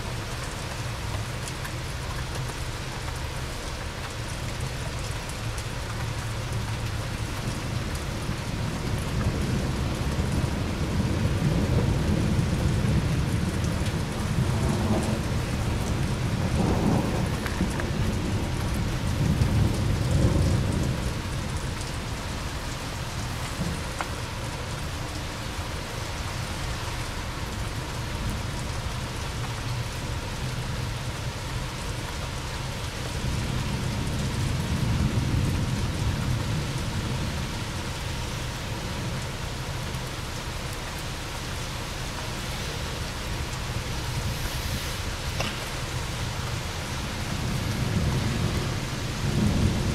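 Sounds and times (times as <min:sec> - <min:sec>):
steady rain hiss: 0:00.0 - 0:49.9
rolling thunder: 0:08.9 - 0:21.3, 0:47.2 - 0:49.9.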